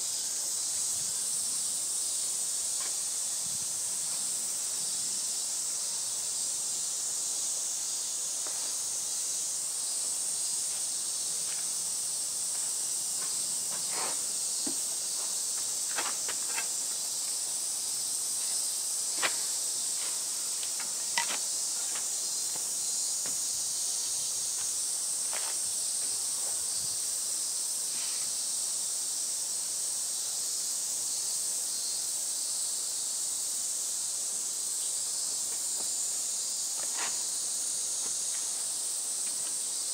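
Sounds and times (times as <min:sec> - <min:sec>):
cicadas hissing: 0:00.0 - 0:39.9.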